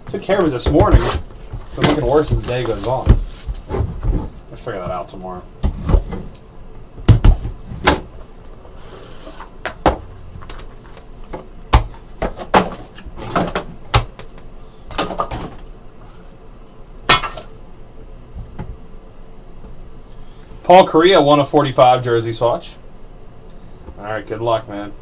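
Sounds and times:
cardboard knocks and rustles: 0.1 - 4.4.

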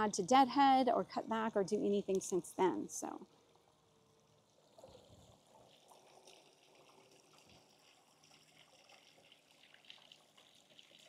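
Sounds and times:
faint trickle of water: 2.8 - 11.0.

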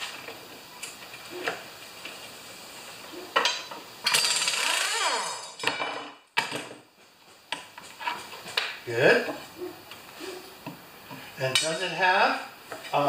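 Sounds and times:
air impact wrench spinning: 4.0 - 5.3.

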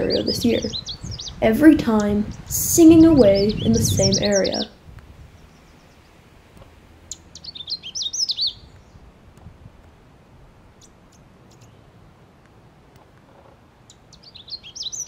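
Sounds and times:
warbler singing: 0.0 - 6.2, 7.0 - 9.1, 10.8 - 11.9, 13.8 - 15.0.

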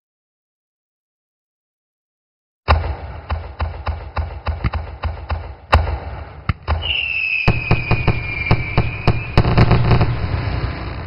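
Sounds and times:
fireworks banging: 2.7 - 11.0
whistling firework: 6.7 - 11.0.

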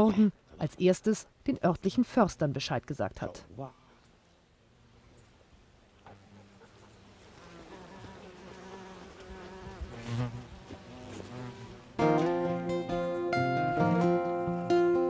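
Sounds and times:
flying insects buzzing: 6.0 - 12.6
acoustic guitar music: 12.0 - 15.0.

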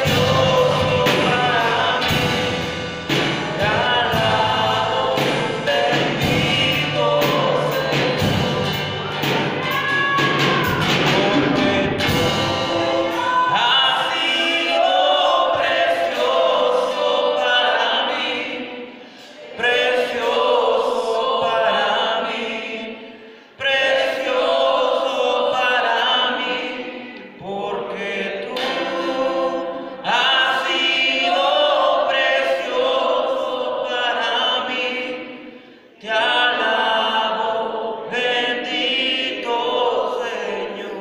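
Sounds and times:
guitars and drums: 0.0 - 14.1
voices singing praise song: 0.0 - 41.0.

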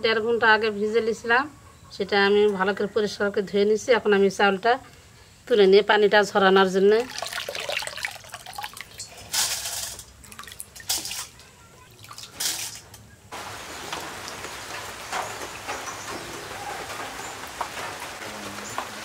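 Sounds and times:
water splashing and dripping: 7.0 - 19.0
steady hiss with ticks: 12.9 - 19.0.

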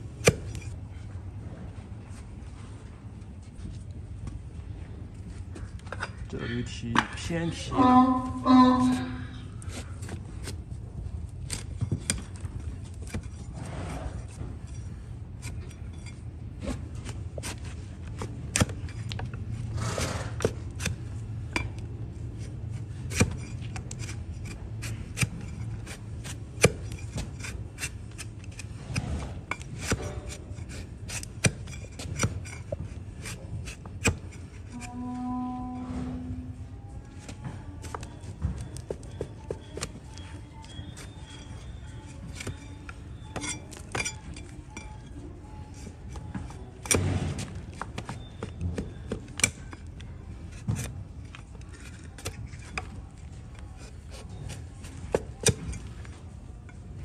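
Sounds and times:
steady low hum: 0.0 - 48.3
blade shaving hoof: 14.2 - 35.0, 37.8 - 45.0.

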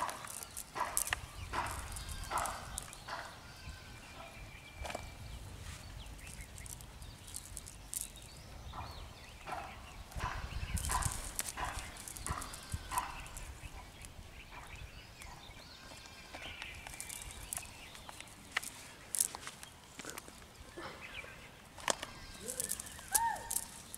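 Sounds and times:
cast net rustling and clicking: 0.0 - 3.3, 6.1 - 8.4, 10.2 - 14.1, 16.4 - 20.6, 21.8 - 23.9
wind rumble on microphone: 8.2 - 15.6.

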